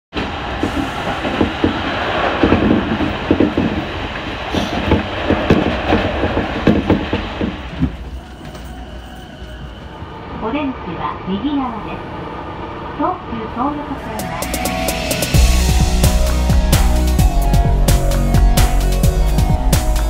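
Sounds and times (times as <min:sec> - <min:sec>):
train wheels rumbling on track: 0:00.1 - 0:20.0
clacks over rail joints: 0:00.2 - 0:08.9.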